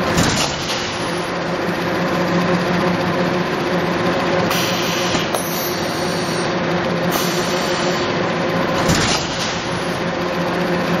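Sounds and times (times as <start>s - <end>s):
machine motor hum: 0.0s - 11.0s.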